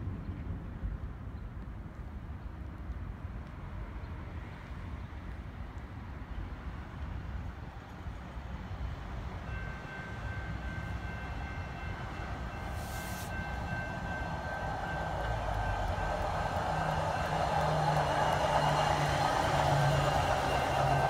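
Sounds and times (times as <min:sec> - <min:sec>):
wheels rumbling on rail: 0:02.5 - 0:21.0
engine hum: 0:13.2 - 0:21.0.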